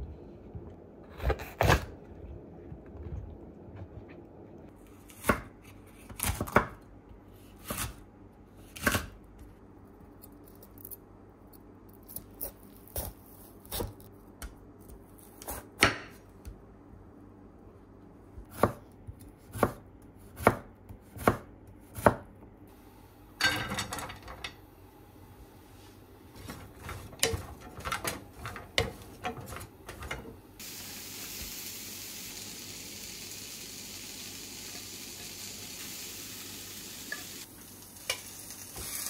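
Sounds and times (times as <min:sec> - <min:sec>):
knife chopping on wooden board: 0:15.4 - 0:16.2, 0:18.5 - 0:22.3
vegetables clattering into pan: 0:23.4 - 0:24.6.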